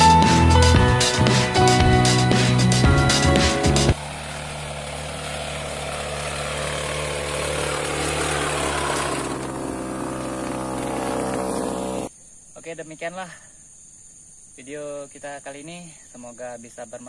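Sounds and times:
motorized sprayer droning: 3.9s - 12.1s.

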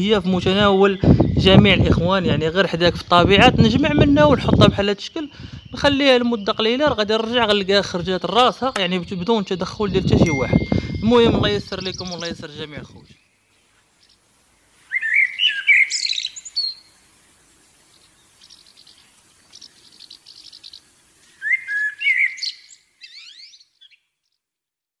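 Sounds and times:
songbird singing: 0.0s - 24.6s.

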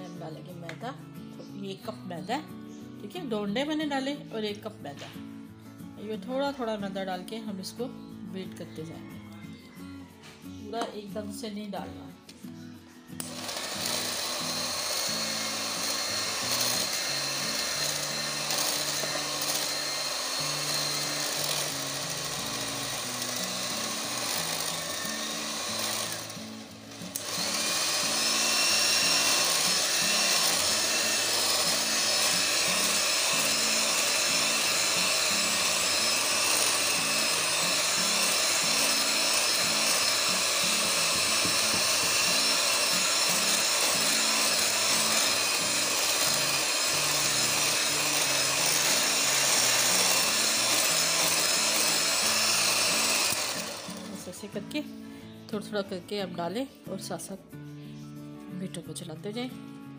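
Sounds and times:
electric hand mixer whirring: 13.2s - 54.7s.

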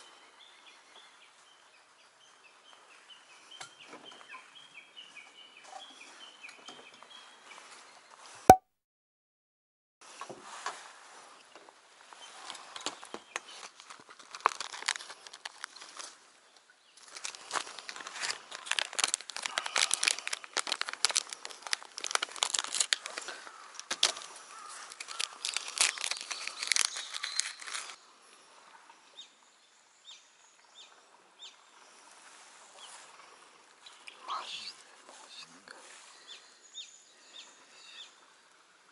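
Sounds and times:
plastic packet crinkling: 13.5s - 16.1s, 17.0s - 28.0s.

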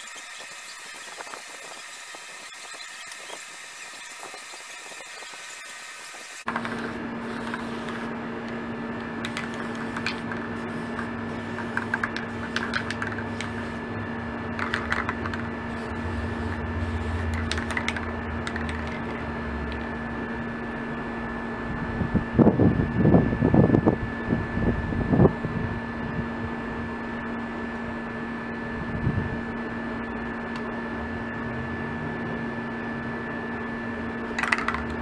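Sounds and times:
spray paint can bursts: 0.0s - 8.1s, 9.2s - 13.8s, 14.6s - 19.2s, 34.4s - 35.0s
steady machine hum: 0.0s - 35.0s.

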